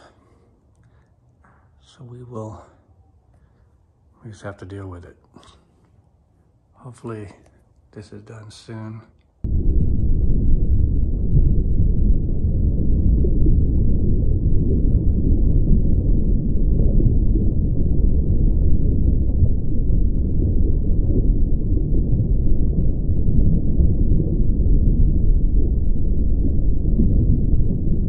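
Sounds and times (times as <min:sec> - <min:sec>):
deep rumble: 0:09.4 - 0:28.0.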